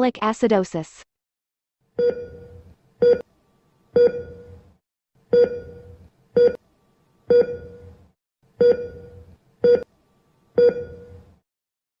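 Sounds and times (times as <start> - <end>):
heart monitor beeps: 2.0 - 3.3, 4.0 - 4.6, 5.3 - 6.6, 7.3 - 8.0, 8.6 - 9.9, 10.6 - 11.3.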